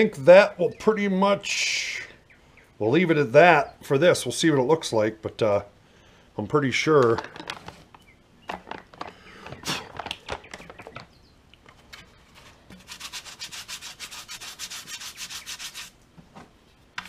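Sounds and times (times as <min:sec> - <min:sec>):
paper packet rustling: 0:07.0 - 0:11.1.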